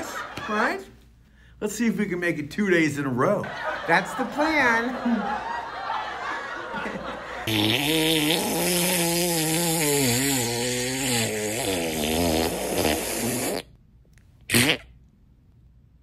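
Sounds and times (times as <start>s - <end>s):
fart sound: 7.4s - 13.8s, 14.4s - 15.0s.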